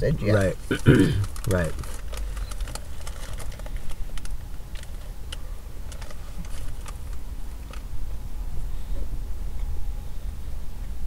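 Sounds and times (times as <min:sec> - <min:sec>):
low steady hum: 0:00.0 - 0:11.0
food clicks and crackles: 0:00.4 - 0:07.9.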